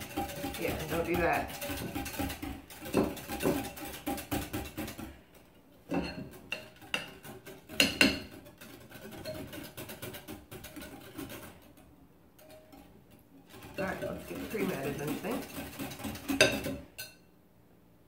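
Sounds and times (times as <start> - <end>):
whisk knocks: 0.0 - 5.0
whisk clinking against glass bowl: 0.0 - 5.1, 5.9 - 11.6, 12.4 - 12.9, 13.5 - 17.3.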